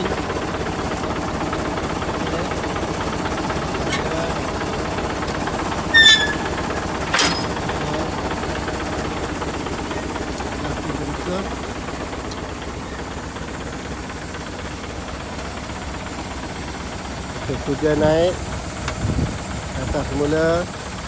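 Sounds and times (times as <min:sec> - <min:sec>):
diesel engine idling: 0:00.0 - 0:21.0
sharp metal clank: 0:05.9 - 0:07.6
short metallic squeal: 0:05.9 - 0:07.6.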